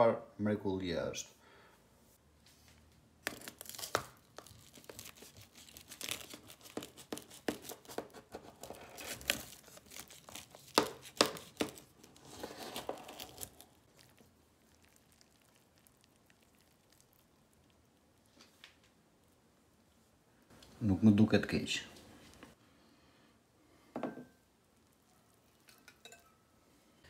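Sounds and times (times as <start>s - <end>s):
knife crunching through crust: 3.2s - 17.3s.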